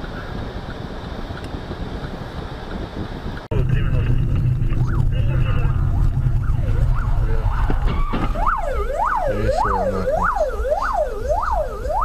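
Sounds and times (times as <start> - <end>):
engine and road rumble: 0.0 - 12.0
siren wailing: 3.8 - 12.0.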